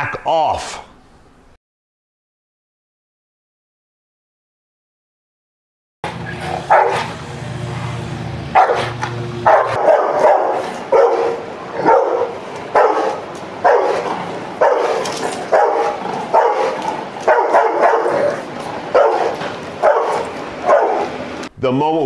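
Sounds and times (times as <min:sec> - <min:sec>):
dog barking: 0:06.4 - 0:07.2, 0:08.5 - 0:21.2.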